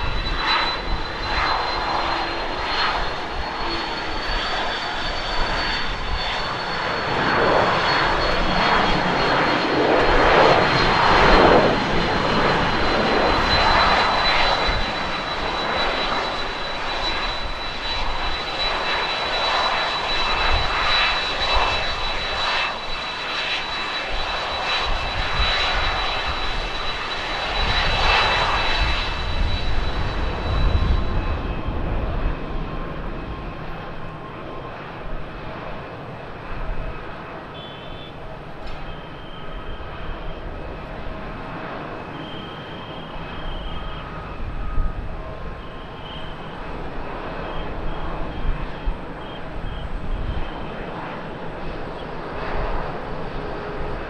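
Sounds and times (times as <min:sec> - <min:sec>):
jet engine rush and whine: 0:00.0 - 0:54.0
wind rumble on microphone: 0:24.1 - 0:34.0, 0:47.1 - 0:50.8.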